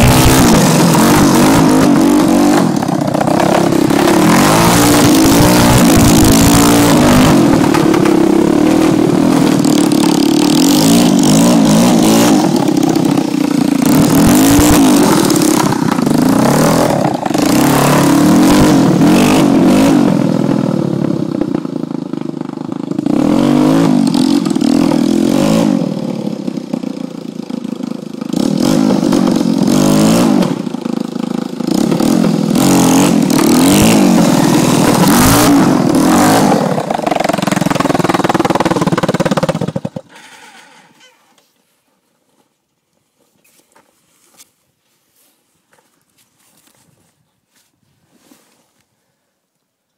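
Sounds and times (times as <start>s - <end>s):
atv engine revving: 0.0s - 41.2s.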